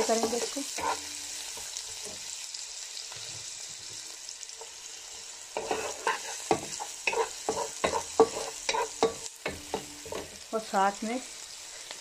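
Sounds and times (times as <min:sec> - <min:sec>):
wooden spatula scraping a pan: 0:00.0 - 0:02.2, 0:05.6 - 0:09.1
onion sizzling in hot oil: 0:00.0 - 0:12.0.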